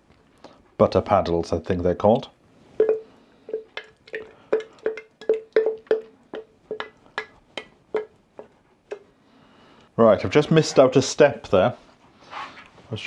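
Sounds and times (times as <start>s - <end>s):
utensil knocking against bowl: 2.8s - 9.1s.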